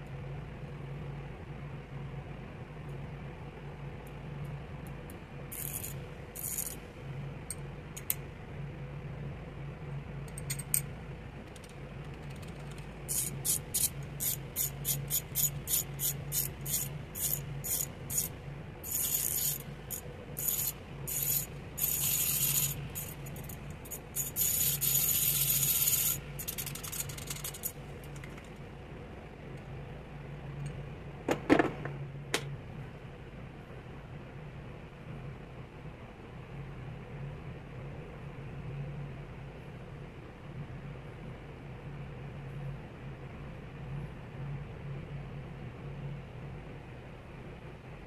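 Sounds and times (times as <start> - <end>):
steady low hum: 0.0 - 48.0
ratchet clicking: 5.5 - 6.8, 11.6 - 27.8.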